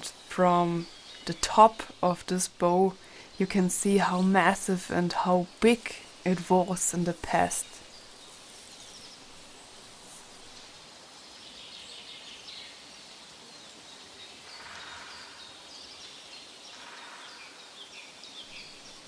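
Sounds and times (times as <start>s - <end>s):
steady outdoor hiss: 0.0s - 19.0s
faint bird chirps: 7.0s - 19.0s.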